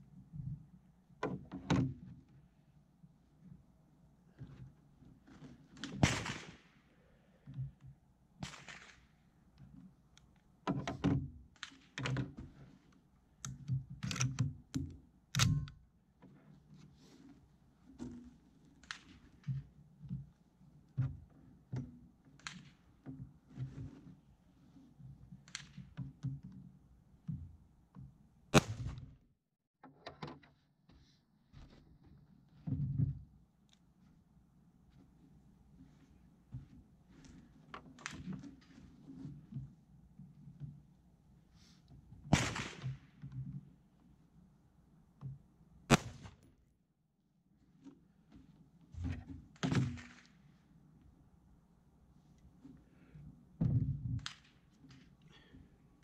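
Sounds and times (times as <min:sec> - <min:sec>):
rifle clicks and knocks: 0:13.4 - 0:15.9
loud rifle clack: 0:15.4 - 0:15.7.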